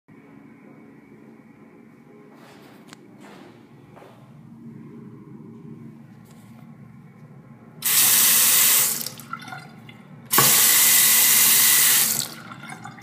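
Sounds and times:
water running into sink basin: 0:07.8 - 0:13.0.

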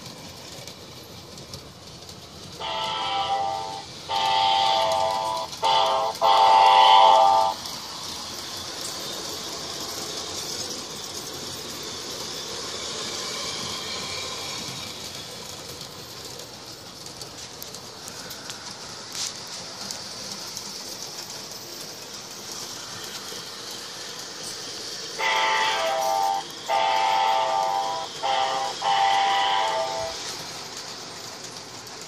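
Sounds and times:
model train running on track: 0:00.0 - 0:32.0
train horn blasts: 0:02.6 - 0:07.6, 0:25.2 - 0:30.2.

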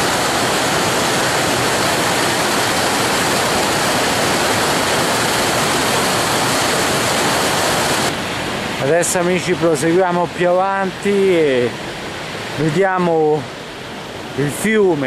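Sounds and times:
waterfall splashing onto rocks: 0:00.0 - 0:08.1.

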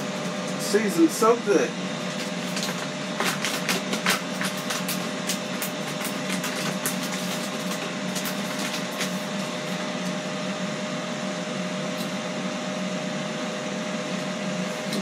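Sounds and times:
grill fan whirring: 0:00.0 - 0:15.0
plastic bag crinkling: 0:02.0 - 0:09.8.

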